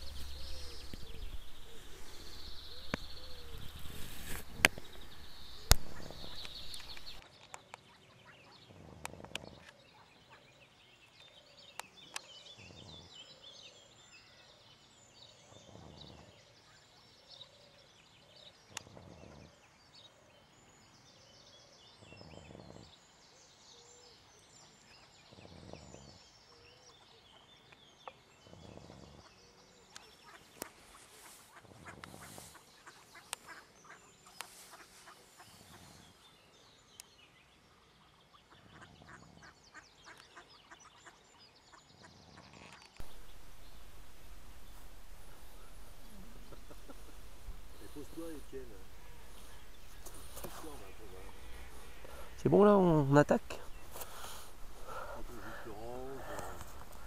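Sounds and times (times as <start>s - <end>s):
ducks quacking and chattering: 0.0s - 7.2s, 30.2s - 36.0s, 38.5s - 41.2s, 42.0s - 57.0s
faint rhythmic snoring: 25.2s - 26.2s, 28.5s - 29.4s, 53.5s - 57.0s.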